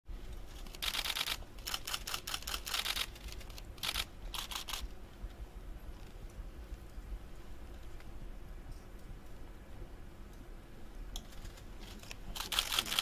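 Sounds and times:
low room hum: 0.1 - 13.0
camera shutters clicking: 0.6 - 4.8, 11.5 - 13.0.

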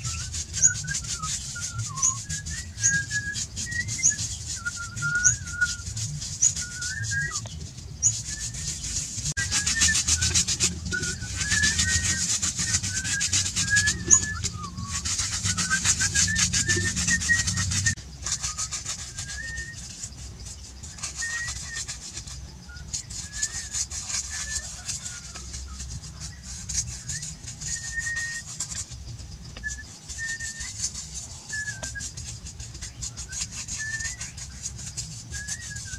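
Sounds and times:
brush scraping a wall: 0.0 - 35.9
birds chirping: 1.6 - 18.0.

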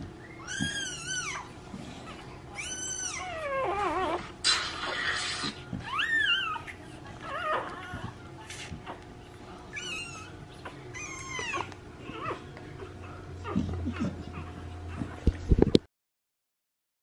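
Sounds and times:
puppy crying: 0.2 - 8.2, 9.7 - 14.5.

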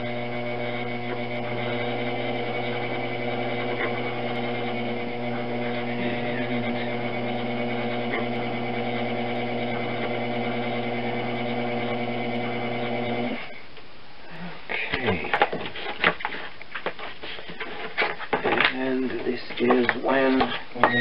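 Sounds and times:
potter's wheel motor hum: 0.0 - 13.6.

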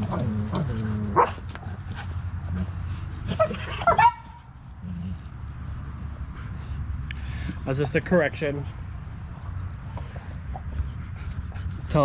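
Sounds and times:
dogs squabbling: 0.0 - 2.2, 3.2 - 4.2
dog yelping: 3.3 - 4.4.

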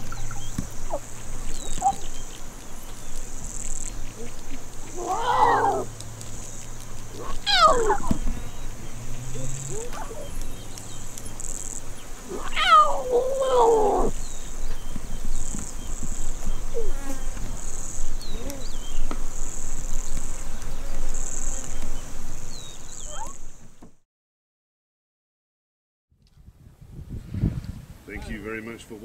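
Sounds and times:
lion cubs calling: 0.0 - 3.0, 3.8 - 17.6, 23.0 - 23.4
high insect buzz: 0.0 - 23.8.

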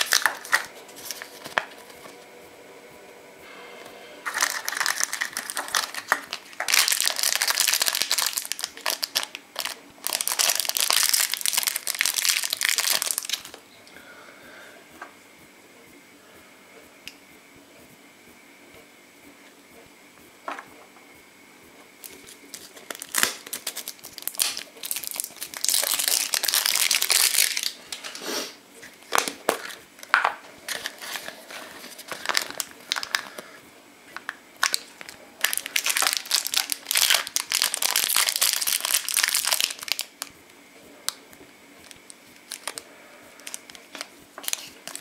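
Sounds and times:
plastic wrapper crinkling: 0.0 - 2.2, 4.2 - 13.6, 22.0 - 28.2, 29.0 - 33.4, 34.2 - 40.3, 41.8 - 45.0.

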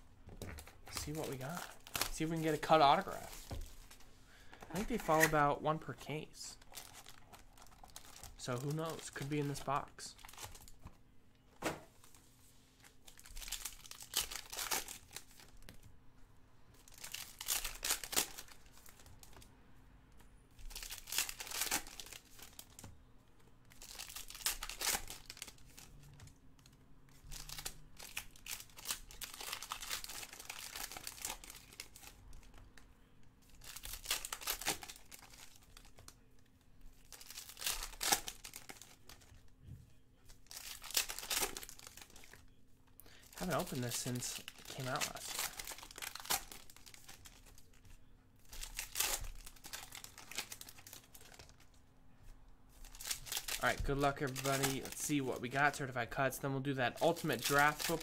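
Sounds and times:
cards being handled: 0.3 - 6.0, 57.1 - 58.0
foil wrappers tearing and crinkling: 13.1 - 15.5, 16.9 - 19.1, 20.7 - 22.8, 23.7 - 26.0, 27.3 - 32.1, 33.5 - 36.0, 37.0 - 39.3, 40.4 - 42.5, 43.4 - 47.8, 48.5 - 51.6, 52.8 - 55.6, 57.0 - 58.0.

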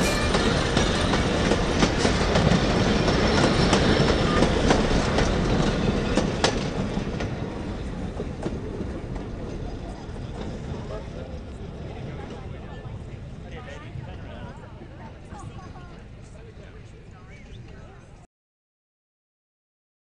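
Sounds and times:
train wheels clicking on rails: 0.0 - 12.8.

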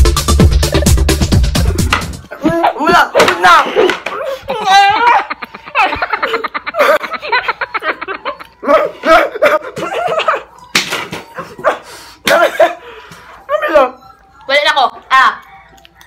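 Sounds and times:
excited voices: 2.3 - 6.4
hearty laughter: 3.7 - 10.5.

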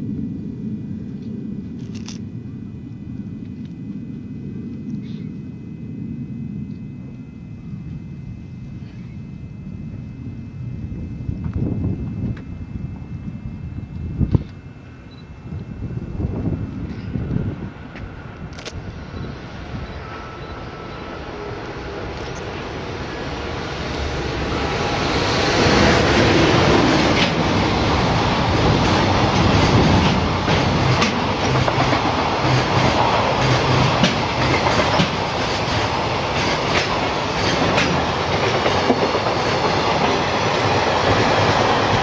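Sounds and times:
freight train rumble: 0.0 - 42.0
train wheel clacks: 25.5 - 42.0.

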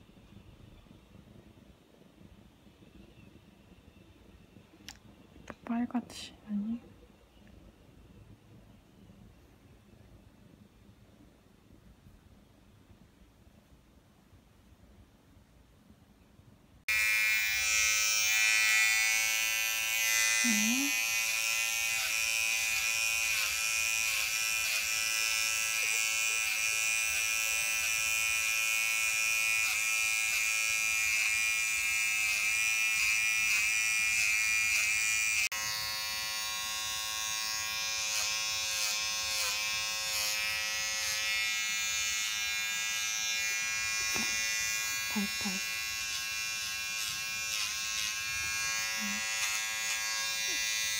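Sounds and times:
electric hair trimmer buzzing: 16.9 - 50.9.

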